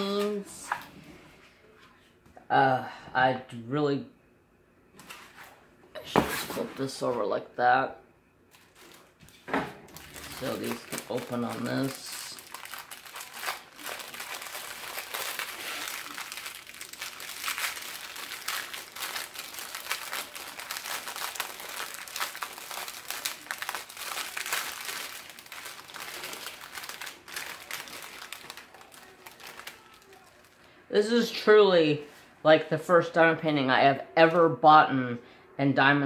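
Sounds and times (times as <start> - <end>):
plastic bag crinkling: 8.5 - 30.8.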